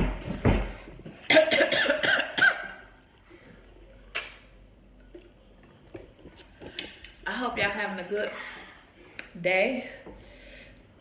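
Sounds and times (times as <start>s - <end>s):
person coughing: 1.3s - 2.8s.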